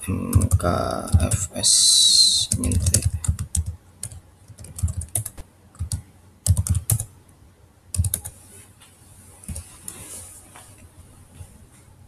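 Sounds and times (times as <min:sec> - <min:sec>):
typing on computer keyboard: 0:02.5 - 0:07.1, 0:07.9 - 0:08.3.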